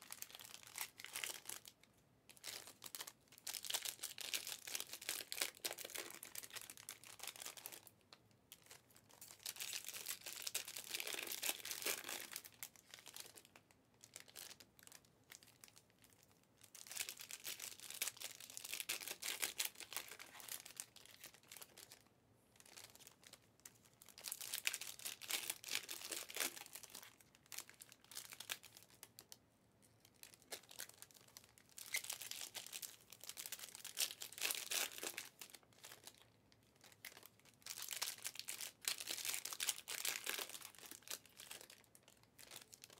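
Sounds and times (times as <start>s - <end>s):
card pack wrappers tearing and crinkling: 9.3s - 13.4s, 16.8s - 22.0s, 24.1s - 29.0s, 30.3s - 36.2s, 37.0s - 42.9s.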